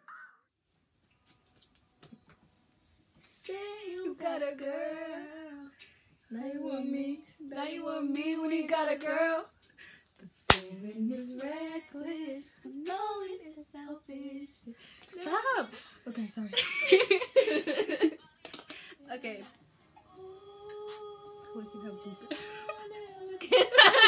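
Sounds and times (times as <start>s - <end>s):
woman singing: 3.4s - 9.5s, 10.6s - 17.1s, 17.7s - 24.0s
sharp crack: 10.5s - 10.7s.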